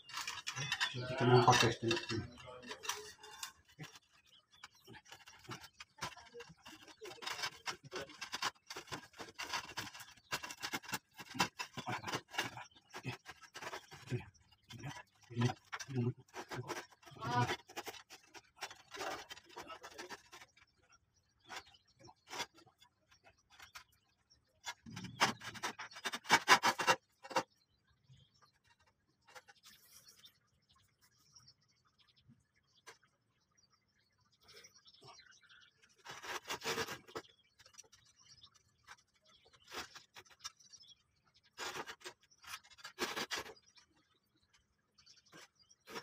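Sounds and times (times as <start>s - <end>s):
hands scraping roof tiles: 0.0s - 20.8s, 21.4s - 24.0s, 24.6s - 27.6s, 35.8s - 38.0s, 41.5s - 43.8s.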